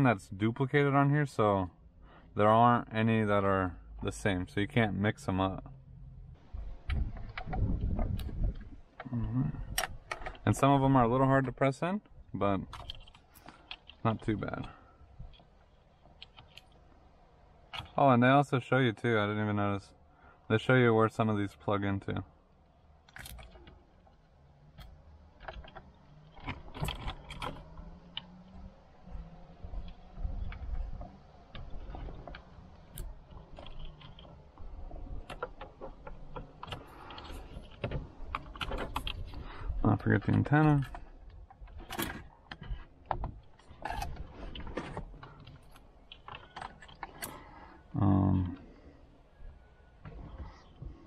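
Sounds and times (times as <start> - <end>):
plastic connectors and cables rattling: 12.6 - 18.0, 22.9 - 48.8.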